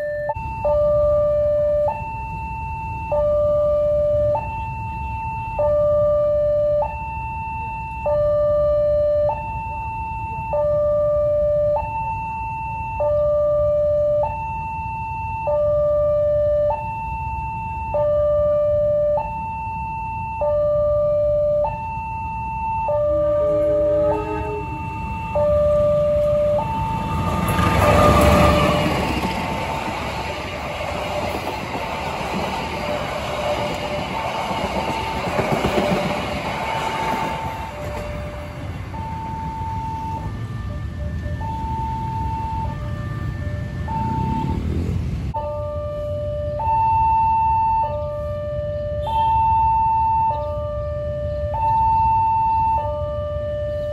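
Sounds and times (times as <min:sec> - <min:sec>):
level crossing two-tone alarm: 0:00.0 - 0:44.7, 0:45.4 - 0:53.9
train wheels clattering on rails: 0:26.1 - 0:39.0.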